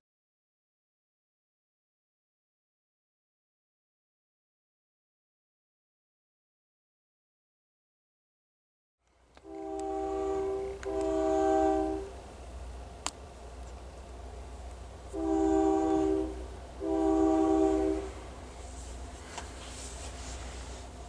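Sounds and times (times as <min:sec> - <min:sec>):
locomotive air horn blasts: 0:09.4 - 0:12.2, 0:15.1 - 0:19.3.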